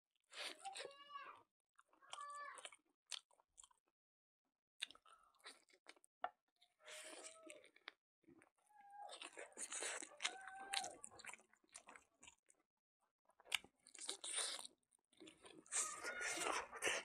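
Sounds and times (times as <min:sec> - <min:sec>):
chewing with wet mouth noises: 0:01.8 - 0:03.8, 0:04.8 - 0:12.6, 0:13.3 - 0:17.0.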